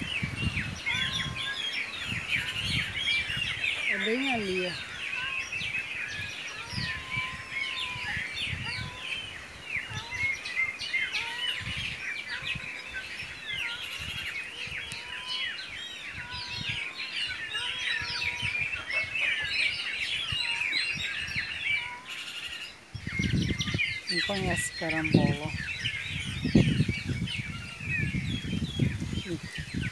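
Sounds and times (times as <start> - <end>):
songbirds chirping and twittering: 0.0 - 29.9.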